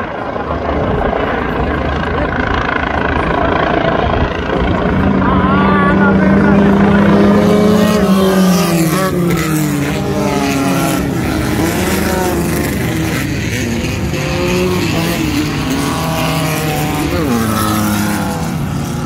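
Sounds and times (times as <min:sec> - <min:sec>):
racing buggy engines passing: 0:00.0 - 0:19.0.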